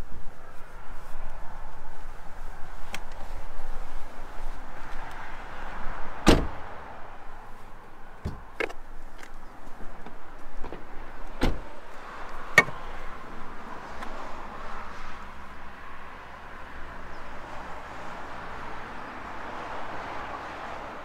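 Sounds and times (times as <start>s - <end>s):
car bonnet latch clicks: 12.5s - 12.8s.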